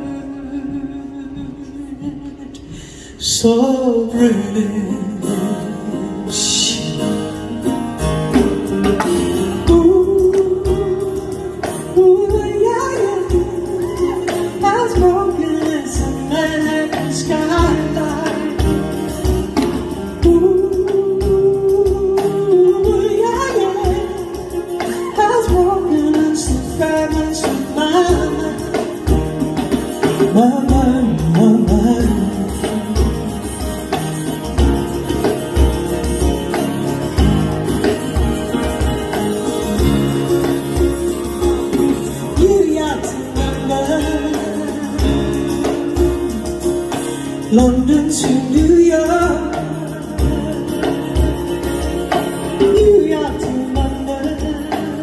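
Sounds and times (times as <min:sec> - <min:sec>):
woman singing: 0:00.0 - 0:07.0, 0:09.2 - 0:34.0, 0:41.8 - 0:46.6, 0:47.4 - 0:51.8, 0:52.4 - 0:55.0
acoustic guitar chords: 0:00.0 - 0:55.0
hand drum beat: 0:04.1 - 0:55.0.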